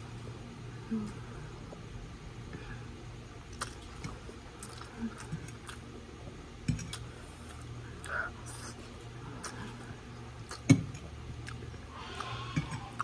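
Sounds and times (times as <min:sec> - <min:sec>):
steady low hum: 0:00.0 - 0:13.0
chewing: 0:03.5 - 0:13.0.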